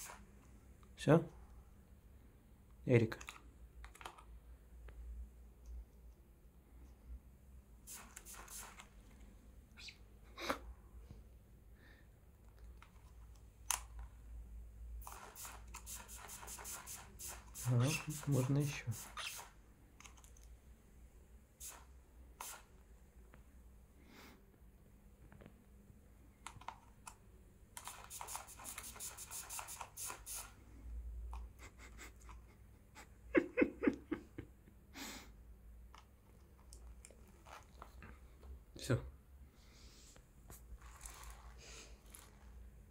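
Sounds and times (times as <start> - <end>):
spray bottle squirting: 0.0 - 0.3, 7.8 - 9.0, 15.0 - 19.6, 21.6 - 22.8, 27.8 - 30.6
brief hiss: 7.9 - 8.9, 21.6 - 22.7.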